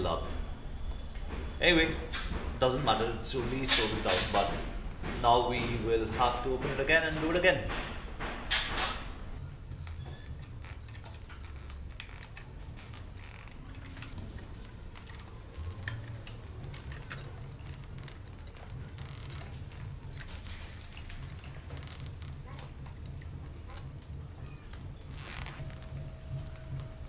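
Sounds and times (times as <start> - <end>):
hand tool metallic clicks: 13.2 - 19.4.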